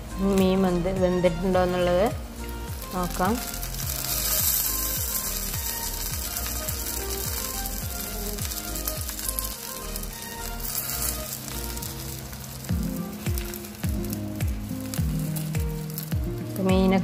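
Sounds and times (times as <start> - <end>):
fish sizzling in oil: 0.0 - 17.0
soft background music: 0.0 - 17.0.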